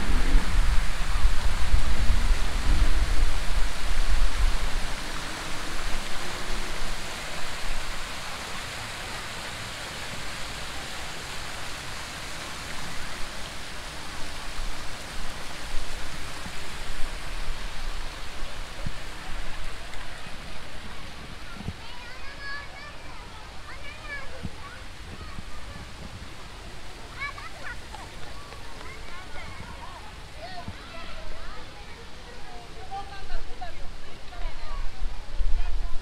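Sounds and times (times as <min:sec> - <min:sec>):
deep rumble: 0:00.0 - 0:03.5
waterfall rushing: 0:00.0 - 0:36.0.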